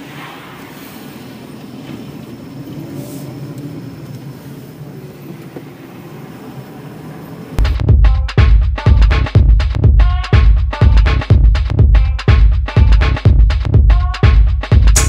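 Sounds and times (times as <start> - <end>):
electronic dance music: 7.6 - 15.0.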